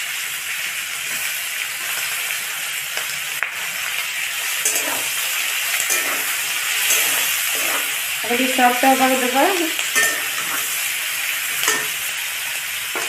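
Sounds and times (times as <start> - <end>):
vegetables sizzling in oil: 0.0 - 13.0
metal spatula scraping pan: 4.4 - 12.2.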